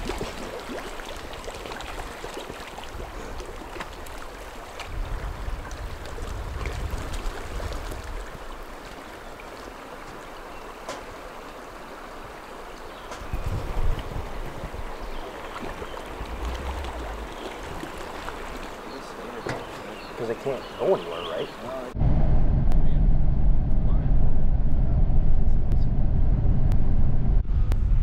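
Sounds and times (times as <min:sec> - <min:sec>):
small splashes: 0:00.0 - 0:20.6
running water: 0:00.0 - 0:22.0
low rumble: 0:16.0 - 0:18.7, 0:21.9 - 0:28.0.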